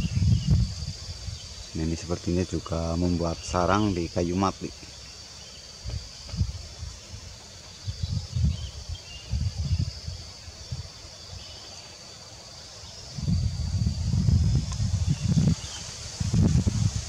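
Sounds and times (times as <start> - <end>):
wind buffeting microphone: 0.0 - 2.6, 5.8 - 11.6, 13.0 - 17.0
insects droning: 0.0 - 17.0.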